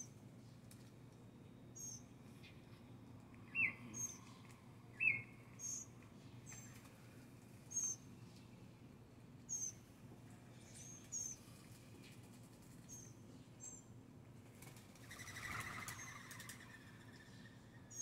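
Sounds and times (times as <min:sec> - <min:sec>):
high bird chirps: 0:05.0 - 0:05.9
doves wing flapping: 0:11.6 - 0:12.9, 0:14.4 - 0:17.2.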